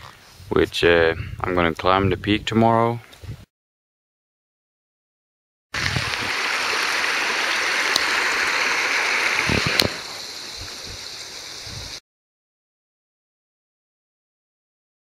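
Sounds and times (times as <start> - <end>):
stream rushing over rocks: 5.8 - 12.0.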